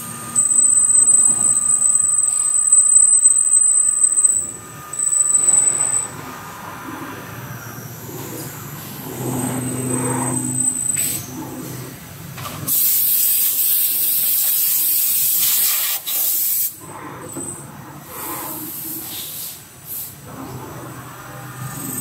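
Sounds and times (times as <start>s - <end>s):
lathe low hum: 0.0s - 12.4s
loud hiss of air or spray: 12.7s - 16.7s.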